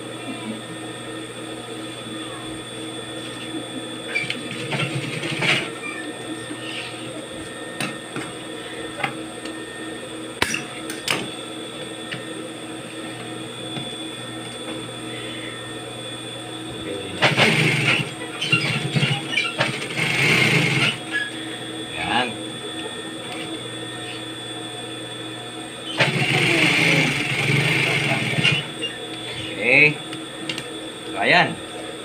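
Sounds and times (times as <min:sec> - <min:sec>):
sewing machine motor humming: 0:04.1 - 0:07.3, 0:16.6 - 0:24.3, 0:25.8 - 0:30.8
sewing machine stitching: 0:04.5 - 0:05.7, 0:17.2 - 0:21.0, 0:25.9 - 0:28.7.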